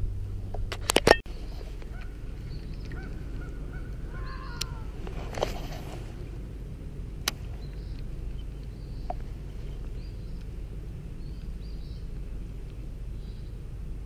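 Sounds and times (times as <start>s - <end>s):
low outdoor rumble: 0.0s - 14.0s
small birds chirping: 1.3s - 14.0s.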